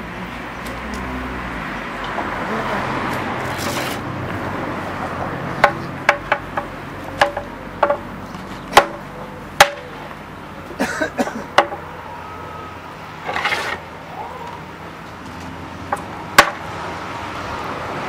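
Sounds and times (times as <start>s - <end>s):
hammer striking iron rim: 8.7s - 10.0s, 16.4s - 16.6s.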